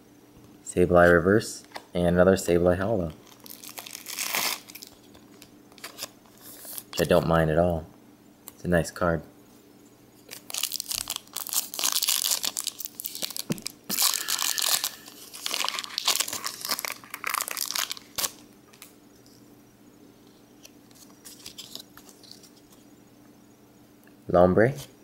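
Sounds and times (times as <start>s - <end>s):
card pack wrapper crinkling and tearing: 3.2s - 7.1s, 10.3s - 18.9s, 20.6s - 22.7s.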